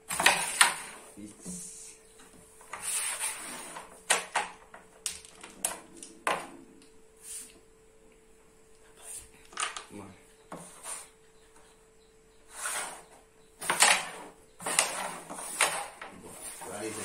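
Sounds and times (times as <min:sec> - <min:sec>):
carrom pieces clicking on board: 0:04.1 - 0:06.6, 0:13.6 - 0:16.2.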